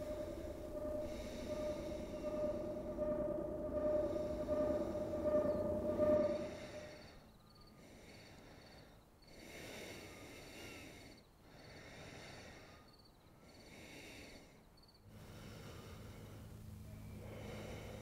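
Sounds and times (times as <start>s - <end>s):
breathing through a respirator: 7.8s - 18.0s.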